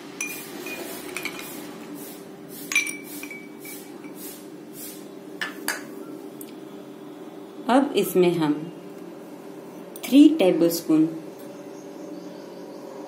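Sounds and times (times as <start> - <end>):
ice cubes clinking in glass: 0.2 - 1.5.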